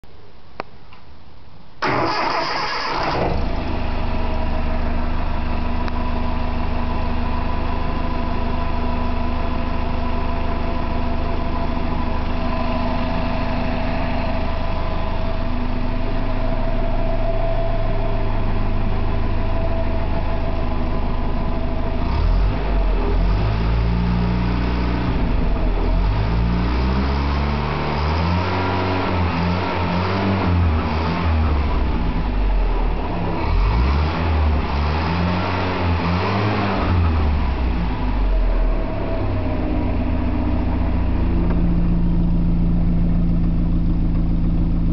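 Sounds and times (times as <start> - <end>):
engine revving: 1.8 - 3.9, 11.5 - 42.1
petrol engine starting and idling: 1.8 - 26.2, 36.7 - 44.9.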